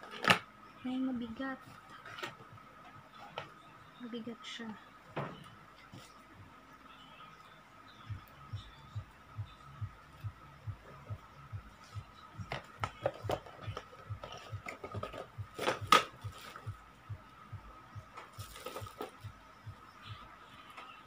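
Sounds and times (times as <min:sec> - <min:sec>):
faint steady hum: 0:00.0 - 0:21.0
plastic wrapping crinkling: 0:18.2 - 0:19.2.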